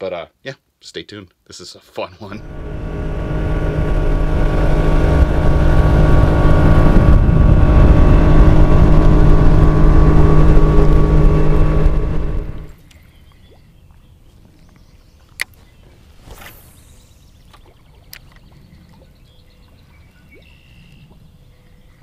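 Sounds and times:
outboard motor running: 2.4s - 12.8s
water and air rushing: 2.4s - 13.0s.

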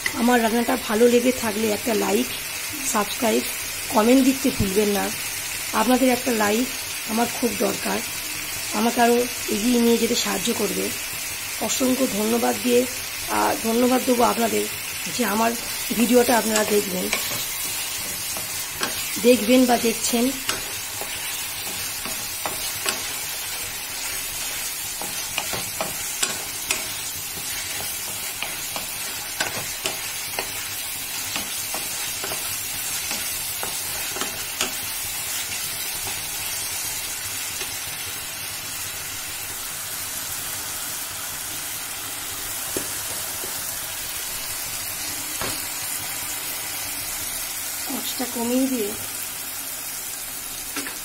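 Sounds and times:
potatoes sizzling in a pan: 0.0s - 51.0s
spatula scraping and tapping pan: 16.4s - 19.5s, 20.3s - 34.9s.

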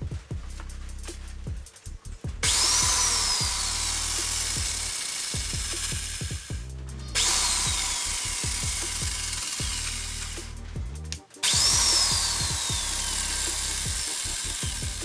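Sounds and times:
electric chainsaw whining: 2.4s - 6.4s, 7.2s - 10.6s, 11.4s - 15.0s.

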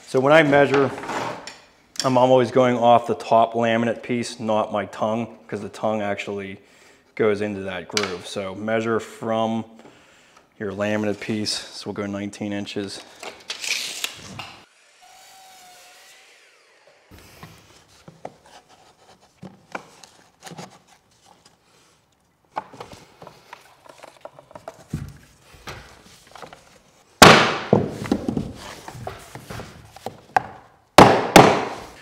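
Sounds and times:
floor planks sliding and knocking: 0.4s - 1.5s, 22.5s - 26.9s, 27.7s - 30.7s
saw blade coasting down: 14.6s - 17.3s.

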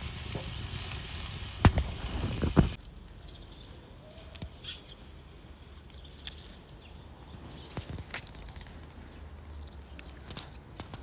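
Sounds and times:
fire hissing: 0.0s - 2.8s
wood fire crackling and popping: 0.0s - 3.3s.

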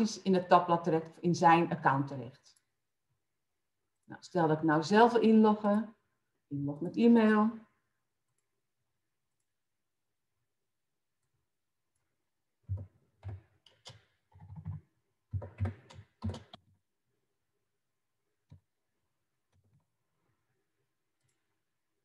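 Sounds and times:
keyboard typing: 11.2s - 16.7s.

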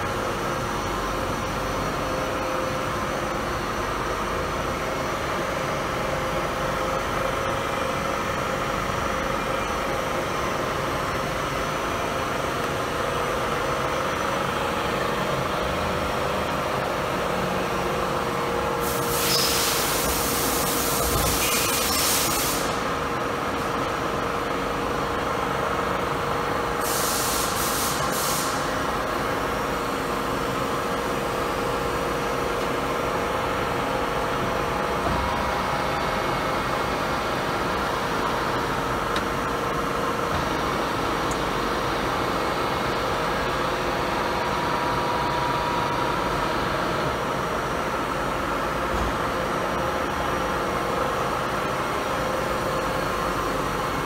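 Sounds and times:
machinery hum: 0.0s - 54.0s
loud hiss: 26.8s - 28.8s.

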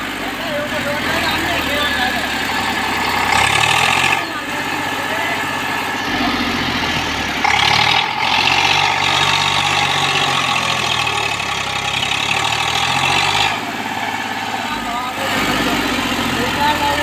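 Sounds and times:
tractor diesel engine straining: 0.0s - 17.0s.

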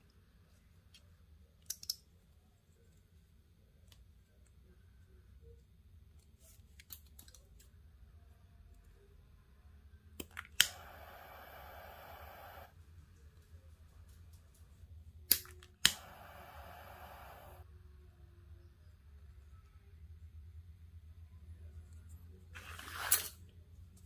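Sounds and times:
paracord handling clicks: 1.6s - 2.1s
torch lighter sparking clicks: 10.3s - 12.7s, 15.3s - 17.6s
torch flame hiss: 10.6s - 12.7s, 15.8s - 17.6s.

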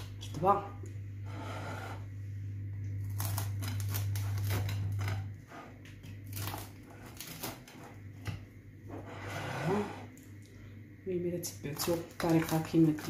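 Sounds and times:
steady low hum: 0.0s - 13.0s
knife crackling through crisp bread: 2.9s - 8.0s, 11.6s - 13.0s.

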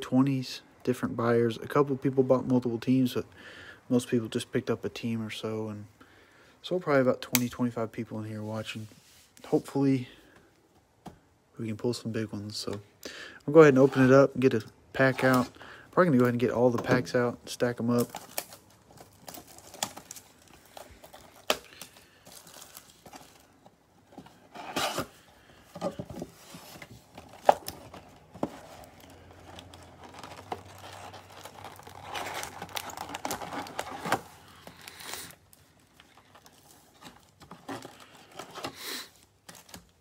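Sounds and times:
card packs crinkling: 13.5s - 40.0s
cellophane and cardboard tearing: 17.8s - 23.5s, 24.4s - 40.0s.

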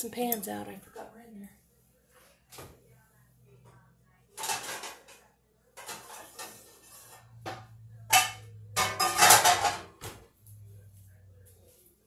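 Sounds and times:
metal baking pans clattering: 4.3s - 10.2s
faint low hum: 7.1s - 12.0s.

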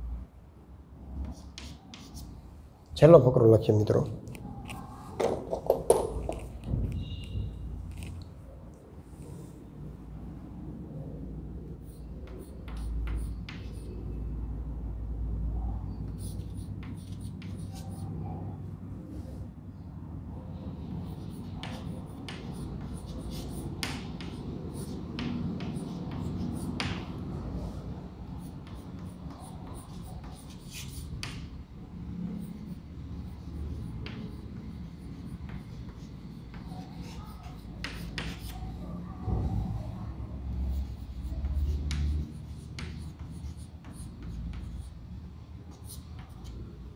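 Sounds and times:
low room rumble: 0.0s - 46.9s
chalk scratching on chalkboard: 1.2s - 2.4s, 11.8s - 14.0s, 16.1s - 18.2s, 21.0s - 38.8s, 40.5s - 46.9s.

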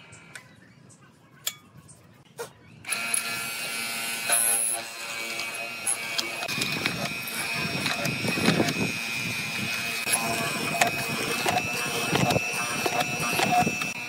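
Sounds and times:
electric motor running with steady whine: 2.9s - 14.0s.

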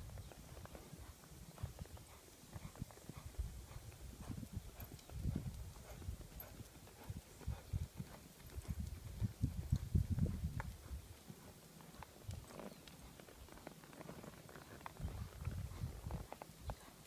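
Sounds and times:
horse hooves thudding on ground: 0.0s - 17.0s.

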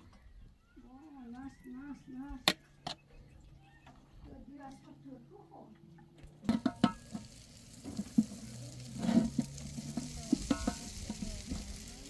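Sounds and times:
metal pot and tray clanking: 6.4s - 11.8s
rice scraped from metal pot: 6.5s - 11.9s.

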